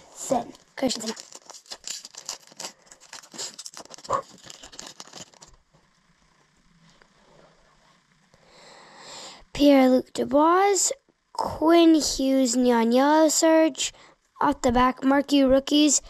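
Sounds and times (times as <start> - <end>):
cards rustling: 0.3 - 5.6
foil wrapper crinkling and tearing: 0.5 - 5.7.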